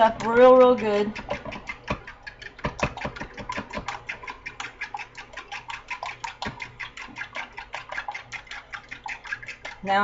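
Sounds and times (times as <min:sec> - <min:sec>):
whisk clicking against plastic bowl: 0:00.0 - 0:10.0.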